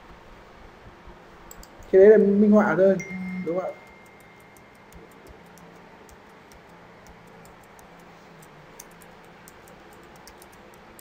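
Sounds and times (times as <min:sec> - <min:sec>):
faint low hum: 0:00.0 - 0:11.0
keyboard keys clicking: 0:03.8 - 0:11.0.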